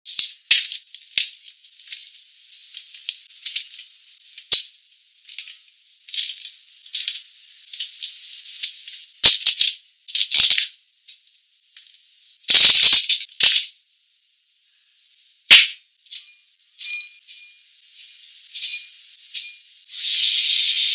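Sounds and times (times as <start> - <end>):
aluminium foil crinkling: 0.1 - 11.2.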